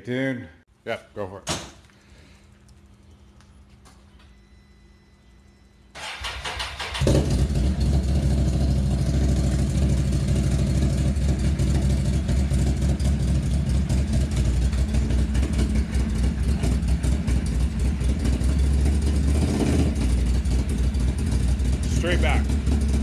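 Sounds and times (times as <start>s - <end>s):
engine idling: 5.9s - 23.0s.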